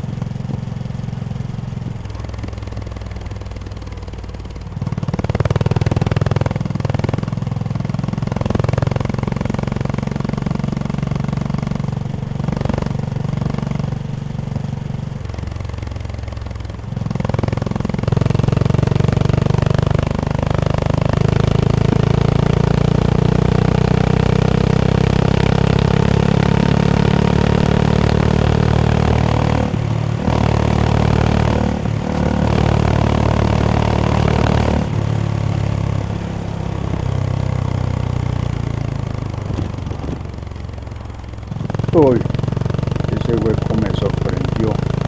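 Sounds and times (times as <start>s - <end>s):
motorcycle engine running: 0.0s - 45.0s.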